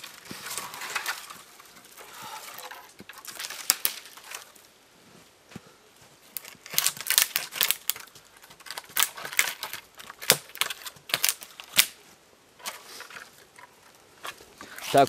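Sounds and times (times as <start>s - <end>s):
wood cracking and twigs snapping: 0.0s - 4.7s, 6.3s - 12.0s.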